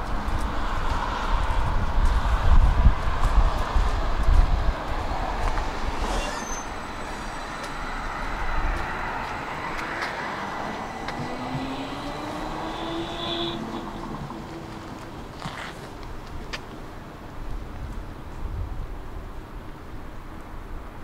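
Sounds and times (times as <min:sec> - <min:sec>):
tram running on rails: 0:00.0 - 0:21.0
thin rising whine: 0:05.5 - 0:14.8.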